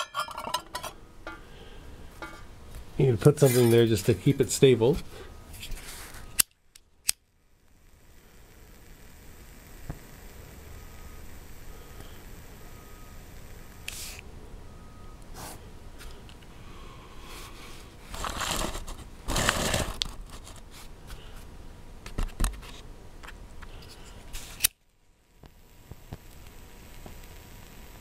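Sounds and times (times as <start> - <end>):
metal handling clicks and knocks: 0.0 - 1.4.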